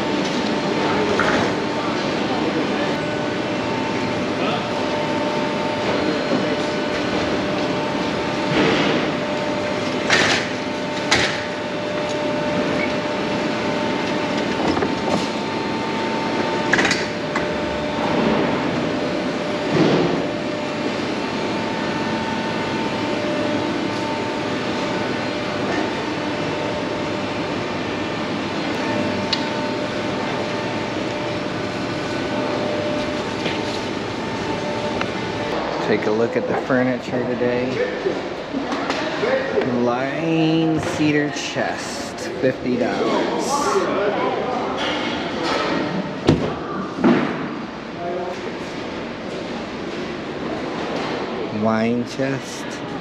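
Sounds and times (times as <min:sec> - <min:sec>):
ventilation hum and rush: 0:00.0 - 0:53.0.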